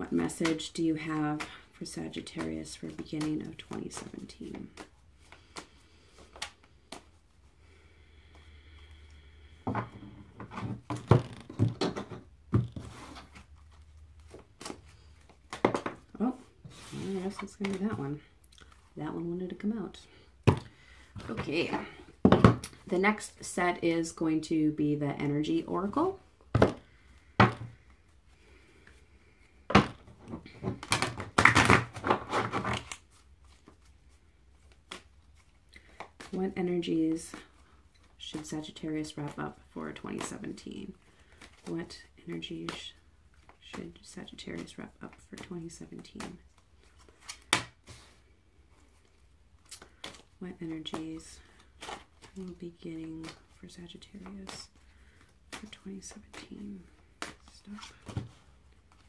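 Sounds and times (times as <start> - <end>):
cards being shuffled: 0.2 - 7.5, 10.5 - 18.9, 29.7 - 59.0.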